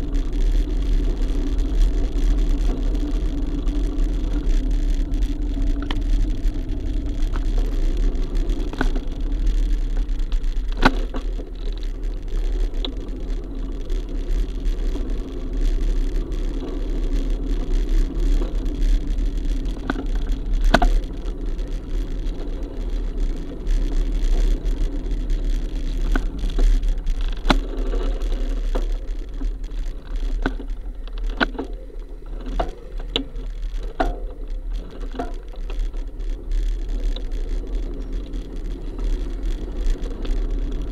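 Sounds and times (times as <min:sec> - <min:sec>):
traffic rumble and engine hum: 0:00.0 - 0:40.9.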